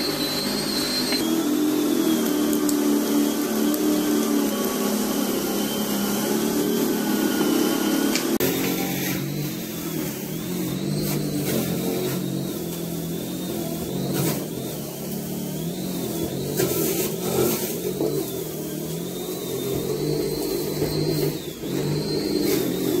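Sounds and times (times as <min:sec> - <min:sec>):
electric lawn scarifier motor hum: 0:00.0 - 0:23.0.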